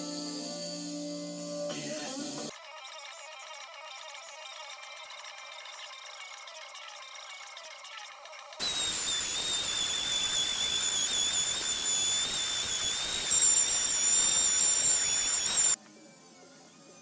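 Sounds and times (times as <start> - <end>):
orbital sander whining: 2.5 - 15.8.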